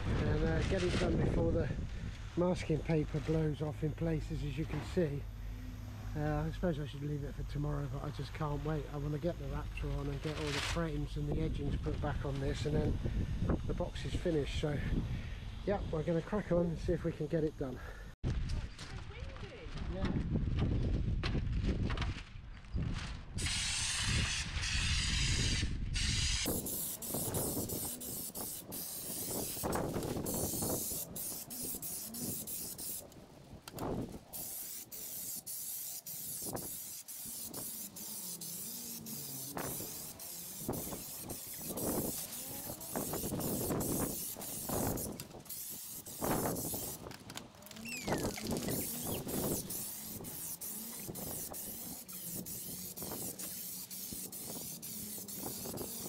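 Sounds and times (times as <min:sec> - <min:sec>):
wind buffeting microphone: 0:18.2 - 0:34.4, 0:39.6 - 0:47.3, 0:47.9 - 0:53.4
spray gun hissing: 0:23.4 - 0:56.0.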